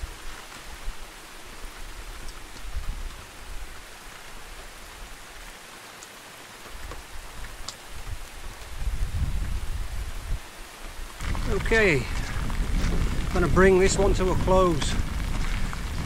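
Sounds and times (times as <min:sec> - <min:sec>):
steady rain hiss: 0:00.0 - 0:16.0
single raindrop ticks: 0:06.0 - 0:06.2, 0:06.8 - 0:07.8.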